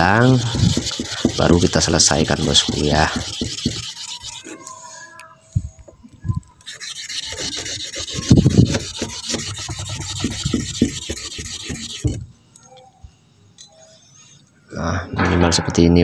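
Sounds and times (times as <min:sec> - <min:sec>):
stone scraping on wet sandpaper: 0:00.0 - 0:05.1, 0:06.6 - 0:12.2.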